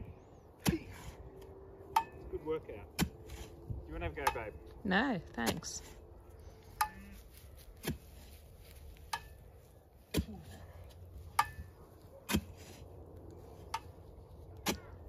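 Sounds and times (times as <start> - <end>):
spade striking hard soil: 12.3 - 12.8.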